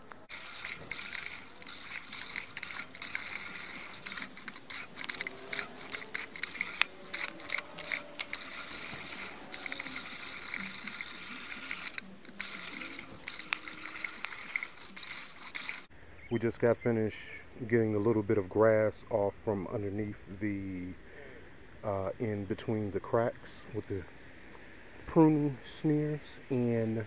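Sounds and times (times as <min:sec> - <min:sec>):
reel mower whirring and clicking: 0:00.0 - 0:15.9.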